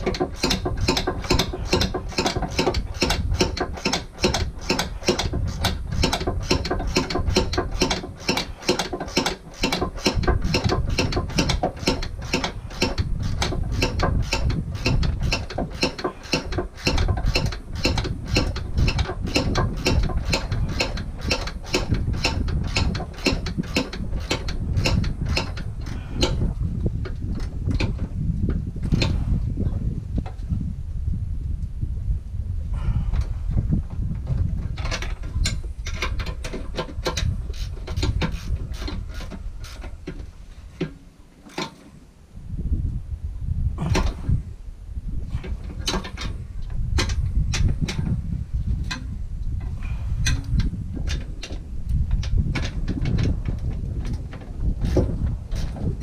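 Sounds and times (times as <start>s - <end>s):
ratchet wrench clicking: 0.0s - 26.4s, 37.1s - 39.8s.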